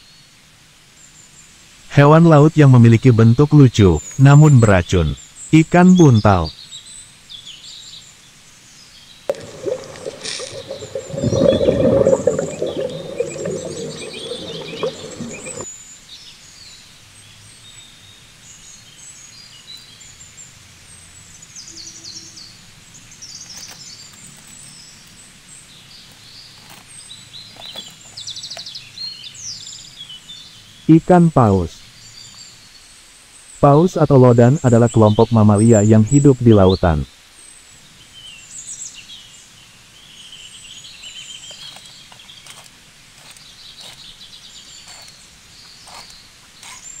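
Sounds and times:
small birds chirping: 9.3 - 15.7, 43.2 - 47.0.

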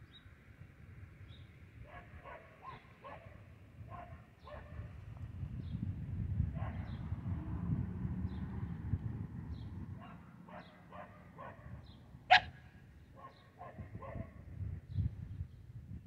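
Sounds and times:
dog barking: 1.8 - 4.9, 6.5 - 7.0, 10.0 - 12.6, 13.2 - 14.4.

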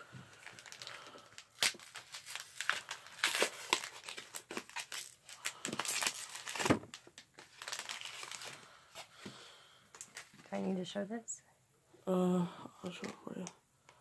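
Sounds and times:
foil wrapper crinkling and tearing: 0.3 - 8.8, 10.0 - 10.6.

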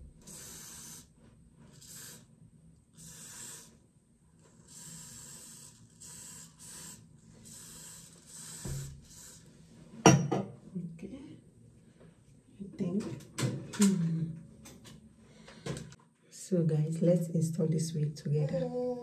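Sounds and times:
aerosol spray hissing bursts: 0.3 - 1.1, 1.7 - 2.3, 3.0 - 3.8, 4.6 - 9.4.

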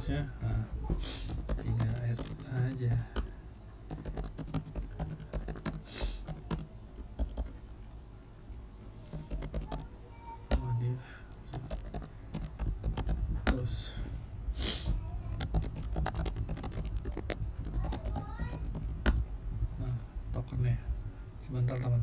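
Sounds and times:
short hisses: 5.8 - 6.3, 14.6 - 15.0
keyboard key clicks: 11.4 - 13.6.

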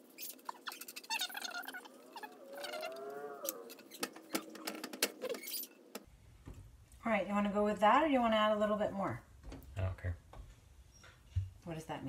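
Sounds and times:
wavering squeaky tones: 0.0 - 5.8.

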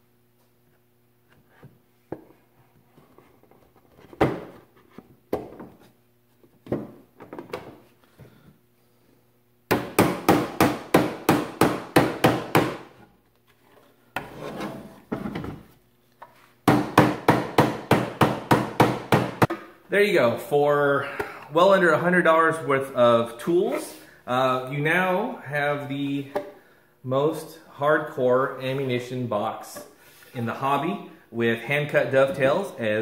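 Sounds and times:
wood scraping: 13.5 - 16.4.

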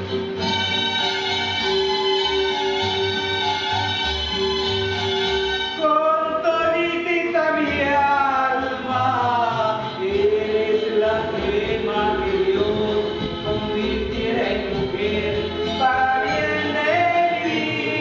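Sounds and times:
musical backing: 0.0 - 18.0
man singing into a microphone: 5.8 - 18.0.

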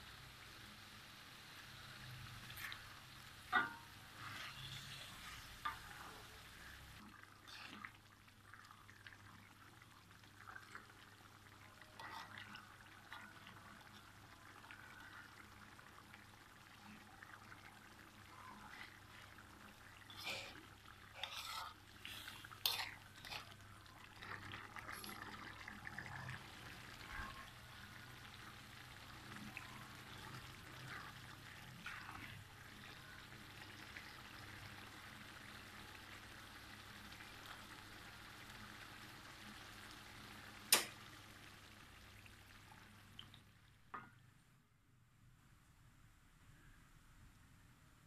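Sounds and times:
sauce simmering in a wok: 0.0 - 48.0
utensil stirring and scraping: 2.4 - 6.4, 11.9 - 13.4, 20.0 - 25.3.

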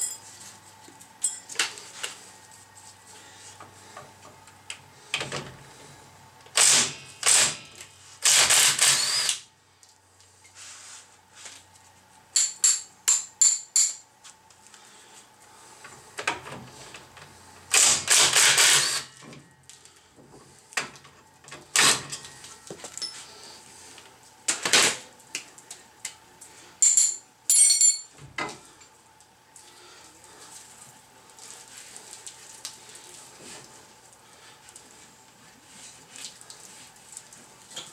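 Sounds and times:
metal clinks and knocks: 1.2 - 1.6, 26.8 - 28.2
impact driver hammering: 6.6 - 7.7.

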